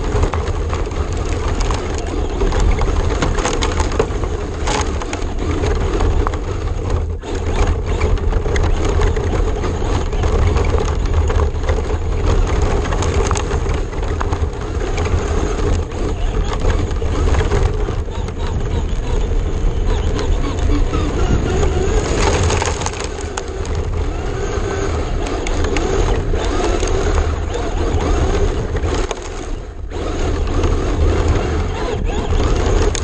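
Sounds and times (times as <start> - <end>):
tyres rumbling on gravel: 0.0 - 33.0
wind on microphone: 0.0 - 33.0
small stones clicking: 7.2 - 29.5.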